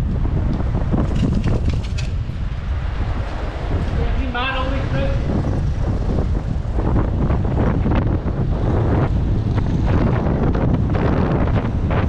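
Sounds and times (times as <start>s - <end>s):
street traffic noise: 0.0s - 12.0s
wind buffeting microphone: 0.0s - 12.0s.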